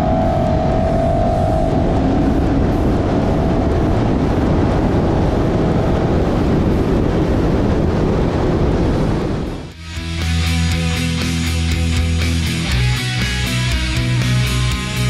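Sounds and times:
wind rushing over camera: 0:00.0 - 0:09.8
faint engine whine: 0:00.0 - 0:12.3
tyre and road roar: 0:00.0 - 0:15.0.

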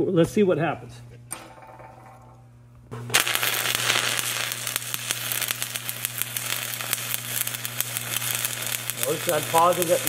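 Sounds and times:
low hum: 0:00.9 - 0:09.2
welding arc crackling and sizzling: 0:02.9 - 0:10.0.

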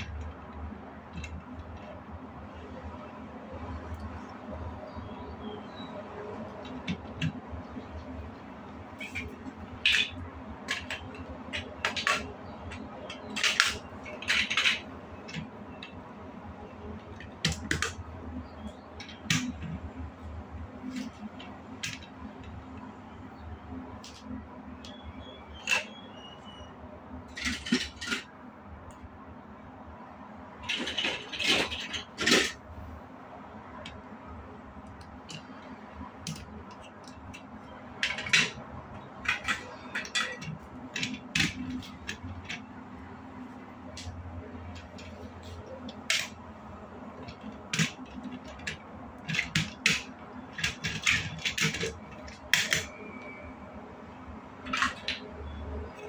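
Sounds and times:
plastic blocks clicking: 0:09.0 - 0:16.0, 0:39.2 - 0:42.6, 0:47.1 - 0:52.9.

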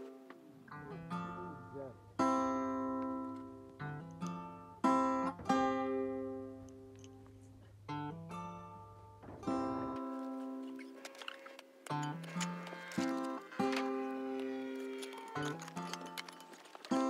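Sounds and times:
acoustic guitar strumming chords: 0:00.0 - 0:06.9.

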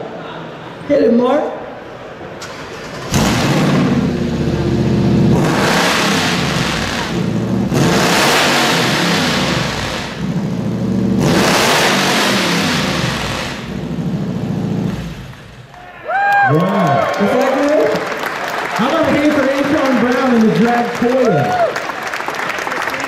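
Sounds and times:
supercharged engine revving: 0:02.4 - 0:15.6.

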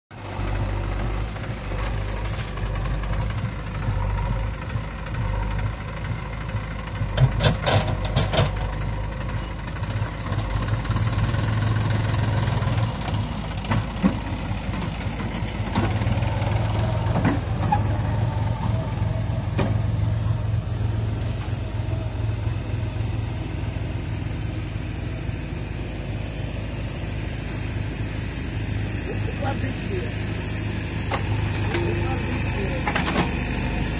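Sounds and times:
backhoe loader engine running: 0:00.1 - 0:33.9
tractor diesel engine running: 0:00.1 - 0:33.9
metallic knocks and clanks: 0:07.2 - 0:08.7.

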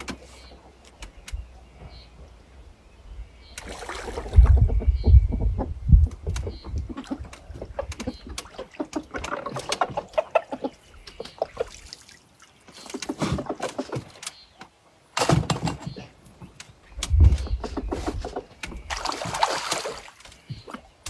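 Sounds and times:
fish thrashing in water: 0:17.6 - 0:20.8.

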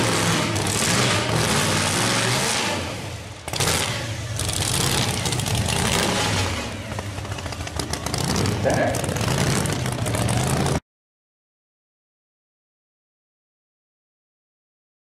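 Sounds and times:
engine at full throttle: 0:00.0 - 0:10.8.

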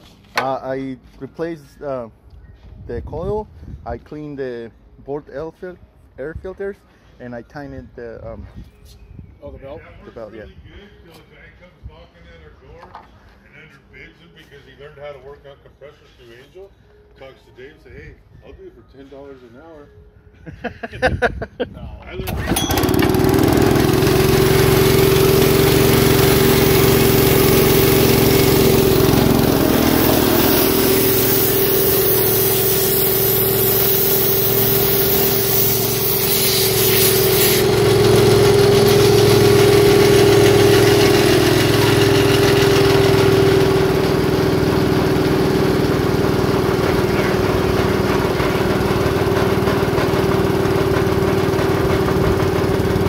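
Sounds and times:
air compressor engine running: 0:22.3 - 0:53.0
air hiss: 0:30.0 - 0:37.6.

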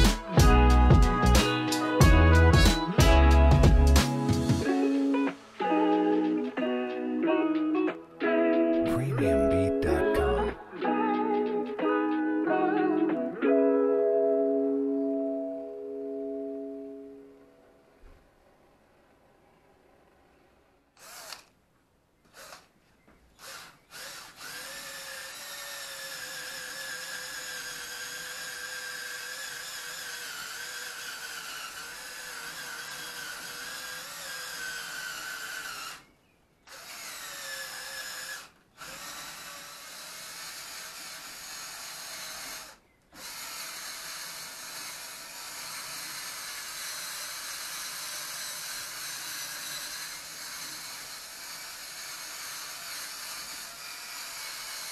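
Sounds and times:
power drill running: 0:21.0 - 0:21.6, 0:22.3 - 0:22.7, 0:23.3 - 0:36.1, 0:36.7 - 0:54.9.

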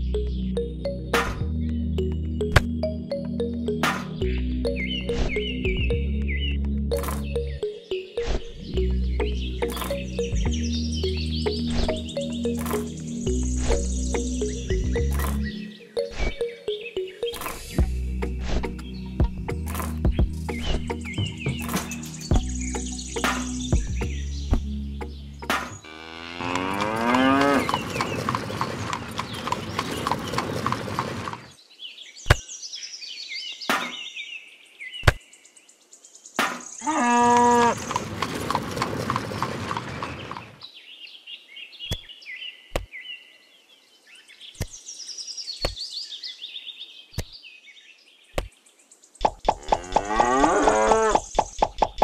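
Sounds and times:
birds chirping: 0:00.0 - 0:52.0
cattle mooing: 0:25.8 - 0:27.8, 0:36.9 - 0:37.9, 0:49.6 - 0:51.2.

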